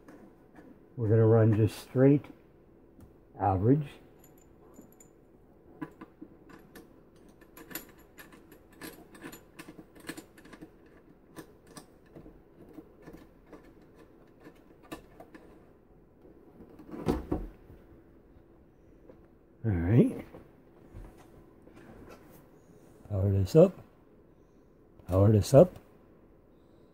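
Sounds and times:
small clicks and rattles: 0:05.8 - 0:15.7.

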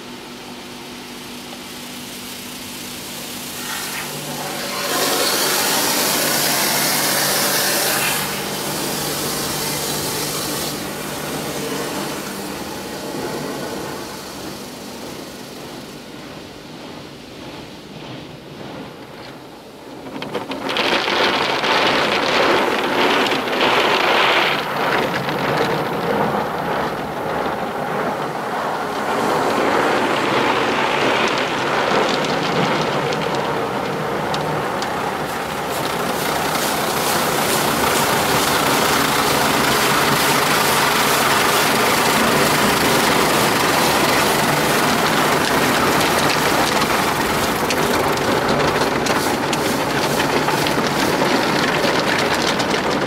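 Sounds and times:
car wash spray on car: 0:00.0 - 0:53.0.

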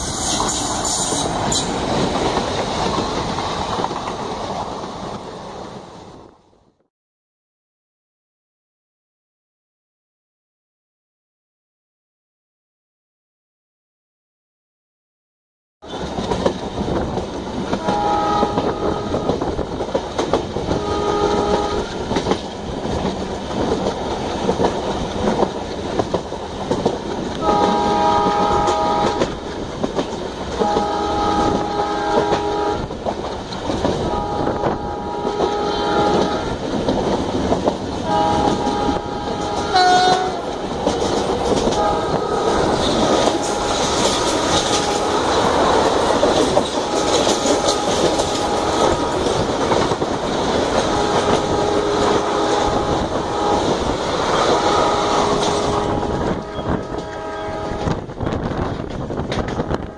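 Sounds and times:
train wheels rumbling on rails: 0:00.0 - 0:06.5, 0:15.8 - 0:59.9
train passing close by: 0:00.0 - 0:06.8, 0:15.8 - 0:59.9
multi-tone locomotive horn blasts: 0:17.7 - 0:19.6, 0:20.2 - 0:22.3, 0:27.3 - 0:29.5, 0:30.5 - 0:33.0, 0:34.0 - 0:36.6, 0:38.0 - 0:50.1, 0:50.7 - 0:58.1, 0:59.3 - 0:59.9.

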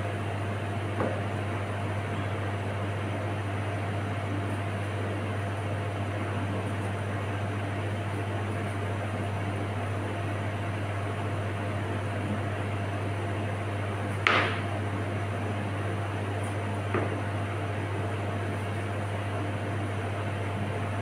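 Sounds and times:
knife knocking on cutting board: 0:01.0 - 0:01.2, 0:14.2 - 0:14.6, 0:16.9 - 0:17.2.

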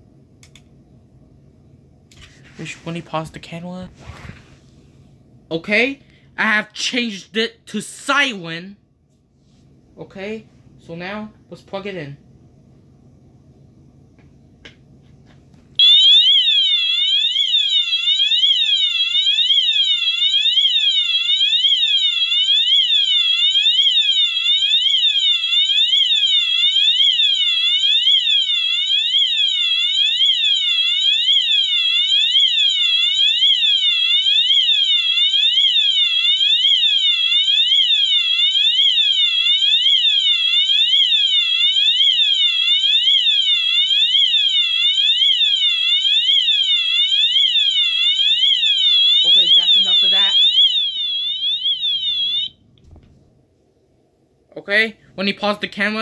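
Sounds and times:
fire alarm siren wailing: 0:15.8 - 0:52.6.

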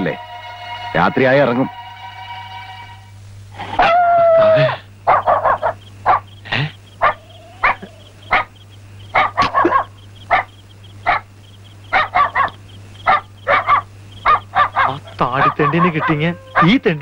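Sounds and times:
dog barking: 0:05.0 - 0:11.3, 0:11.9 - 0:17.0.

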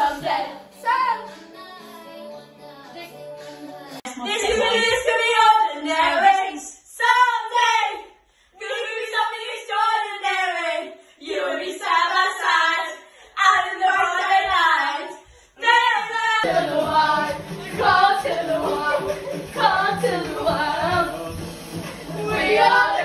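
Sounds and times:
woman singing: 0:00.0 - 0:07.9, 0:08.6 - 0:21.2
backing music with low bass: 0:16.4 - 0:23.0.

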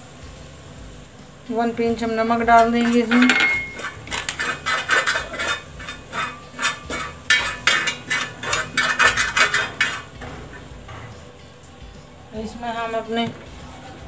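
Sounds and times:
metal spoon scraping a griddle: 0:02.3 - 0:11.3.

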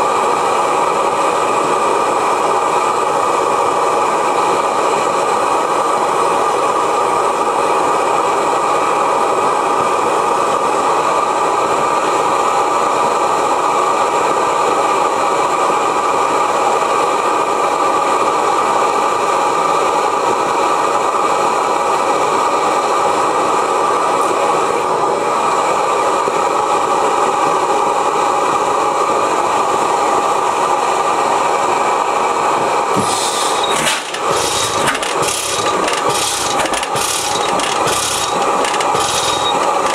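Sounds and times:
propane burner roaring: 0:00.0 - 0:39.9.

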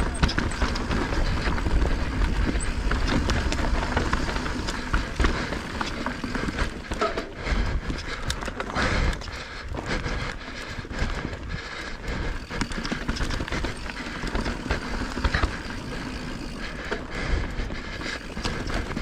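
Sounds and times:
bike knocks and rattles: 0:00.0 - 0:09.3, 0:12.3 - 0:17.1, 0:17.9 - 0:19.0
bike tyres crunching over stones: 0:00.0 - 0:19.0.

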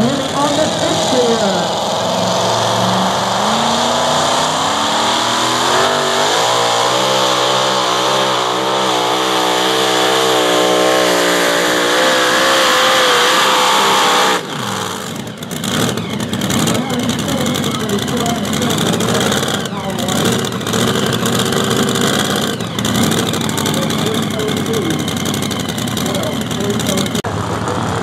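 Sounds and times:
truck engine at full throttle: 0:00.0 - 0:28.0.

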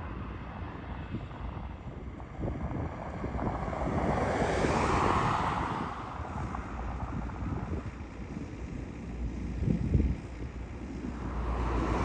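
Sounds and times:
wind on microphone: 0:00.0 - 0:12.0
vehicle passing by: 0:02.2 - 0:08.4, 0:09.6 - 0:12.0.

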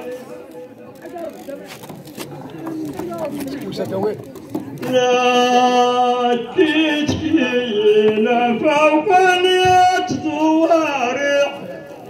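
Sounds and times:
man chanting: 0:04.8 - 0:12.0.

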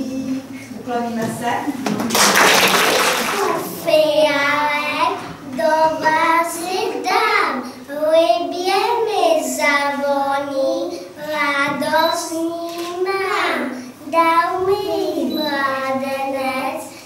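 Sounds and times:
girl singing unaccompanied: 0:03.7 - 0:17.0.

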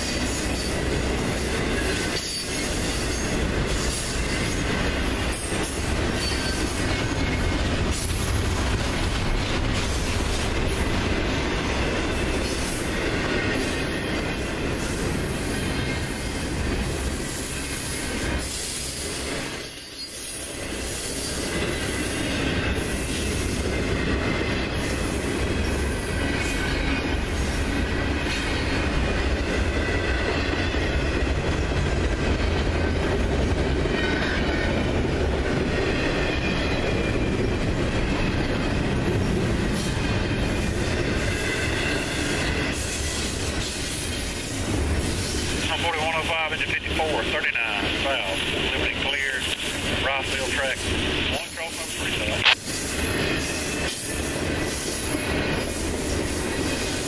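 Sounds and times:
wheels squealing: 0:00.0 - 0:08.6, 0:33.9 - 0:45.6
freight train wheels rumbling: 0:00.0 - 0:57.0.

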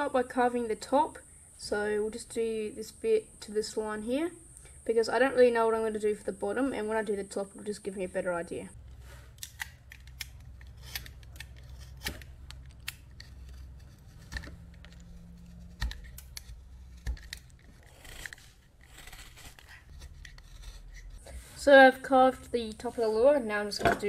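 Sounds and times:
knife carving wood: 0:08.8 - 0:23.7.

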